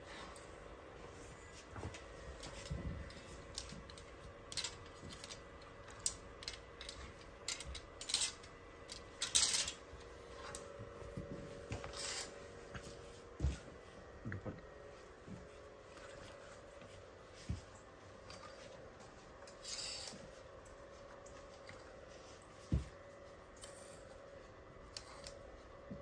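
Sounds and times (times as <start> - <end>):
hangers clicking on metal rail: 3.5 - 9.8.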